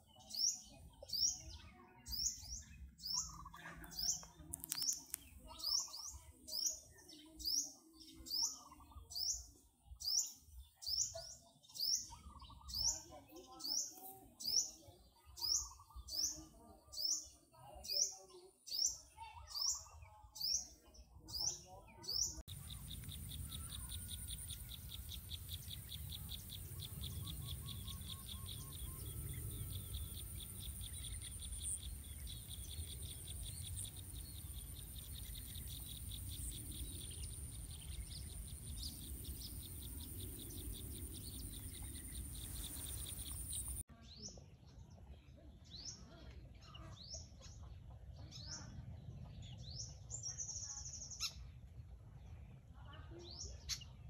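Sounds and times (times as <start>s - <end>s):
bird chirps: 0.0s - 44.4s
insect pulsing trill: 22.5s - 43.8s
insects droning: 22.5s - 43.8s.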